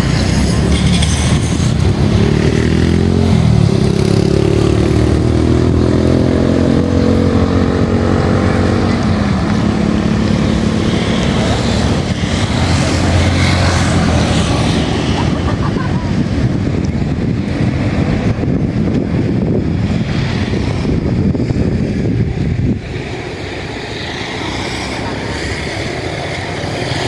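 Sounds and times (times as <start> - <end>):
motorcycle engines revving: 0.0 - 27.0
steady rumble: 3.0 - 24.4.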